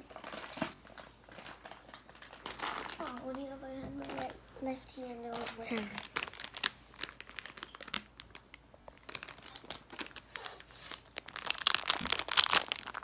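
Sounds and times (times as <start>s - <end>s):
plastic packaging crinkling: 0.0s - 13.0s.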